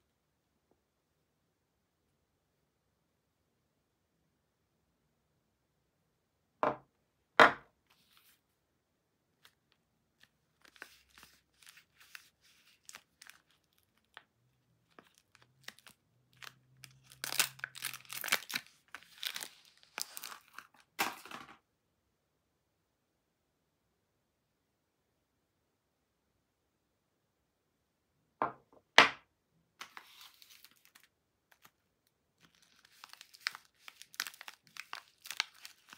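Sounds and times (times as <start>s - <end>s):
soap knocking on wooden table: 6.6s - 6.8s
paper wrapper crackling and tearing: 9.4s - 21.0s, 29.8s - 35.9s.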